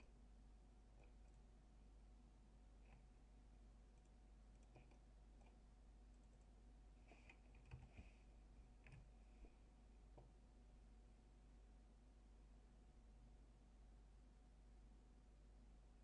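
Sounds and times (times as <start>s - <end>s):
steady low hum: 0.0s - 16.0s
computer mouse clicks: 2.8s - 3.1s, 4.0s - 6.5s, 7.1s - 8.1s, 8.8s - 9.1s.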